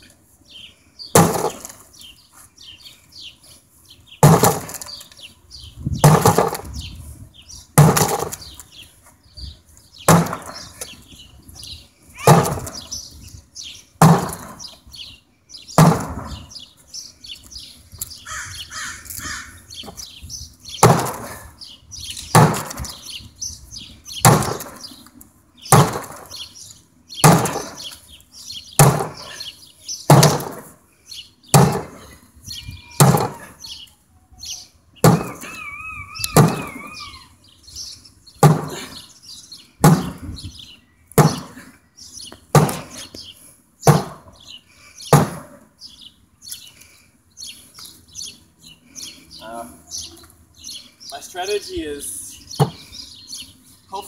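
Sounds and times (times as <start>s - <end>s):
pickaxe striking wooden door: 1.2s - 1.6s, 4.2s - 4.8s, 6.0s - 6.6s, 10.1s - 10.5s, 12.2s - 12.7s, 14.0s - 14.6s, 15.8s - 16.2s, 24.2s - 24.7s, 25.7s - 26.2s, 27.2s - 27.8s, 28.8s - 29.2s, 30.1s - 30.6s, 31.5s - 31.9s, 33.0s - 33.4s, 38.4s - 38.8s, 39.8s - 40.2s, 42.5s - 42.9s.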